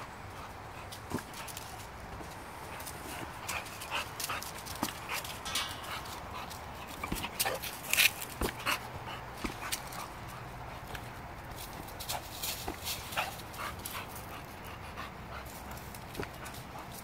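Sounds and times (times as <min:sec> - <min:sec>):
paws scuffing in dry leaves: 0:11.4 - 0:14.5.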